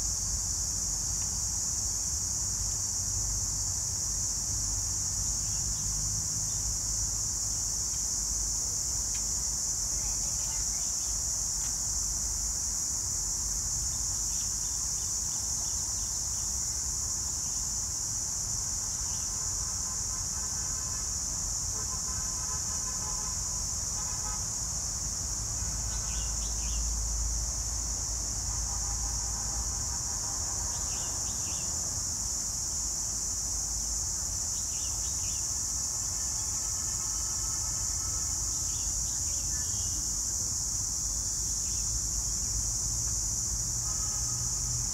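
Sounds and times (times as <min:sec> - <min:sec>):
high-pitched insect chorus: 0:00.0 - 0:44.9
vehicle horn toots: 0:43.8 - 0:44.7.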